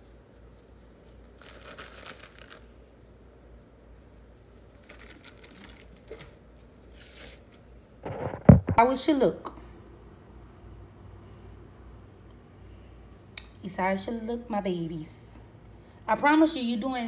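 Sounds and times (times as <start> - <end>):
packet crinkling: 1.1 - 2.9, 4.7 - 6.4.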